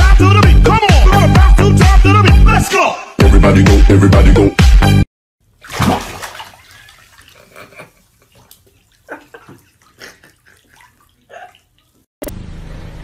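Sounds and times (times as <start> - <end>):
bathwater splashing: 5.4 - 12.1.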